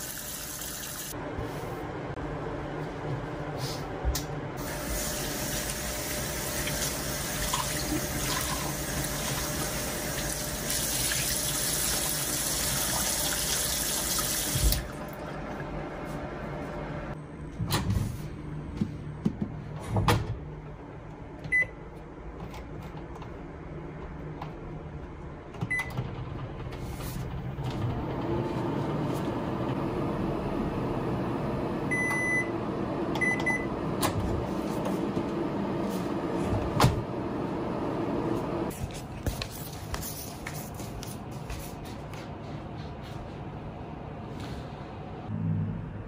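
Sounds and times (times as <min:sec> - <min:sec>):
microwave humming: 0:00.0 - 0:17.9, 0:25.6 - 0:38.7
microwave high beeps: 0:21.5 - 0:21.8, 0:31.9 - 0:32.6, 0:33.2 - 0:33.8.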